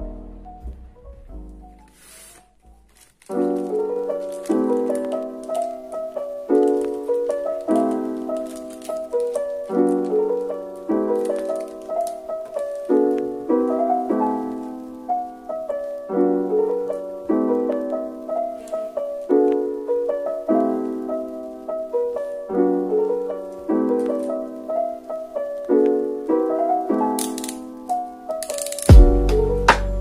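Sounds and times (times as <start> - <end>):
gentle piano music: 0.0 - 30.0.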